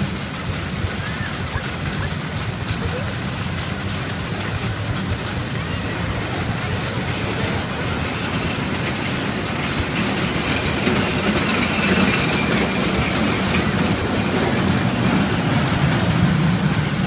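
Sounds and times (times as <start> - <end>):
roller coaster rumbling on track: 0.0 - 17.0.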